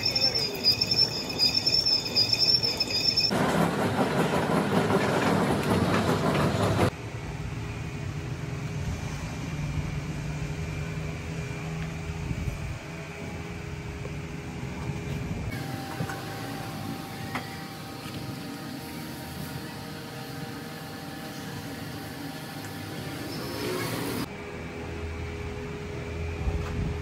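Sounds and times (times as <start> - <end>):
steady machine hum: 6.9 - 27.0.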